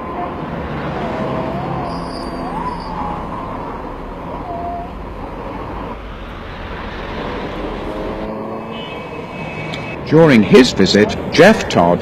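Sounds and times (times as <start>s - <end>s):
street noise: 0.0s - 12.0s.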